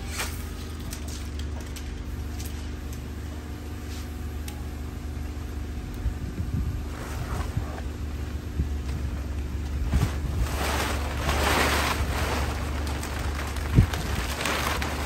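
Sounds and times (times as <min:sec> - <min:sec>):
low motor hum: 0:00.0 - 0:15.0
plastic cover rustling: 0:09.6 - 0:15.0.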